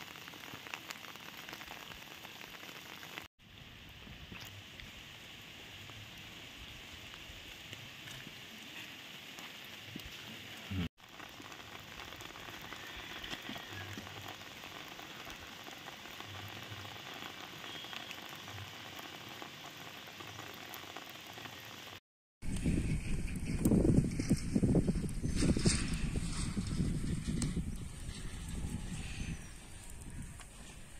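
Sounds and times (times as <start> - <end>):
light rain on wet road: 0.0 - 22.6.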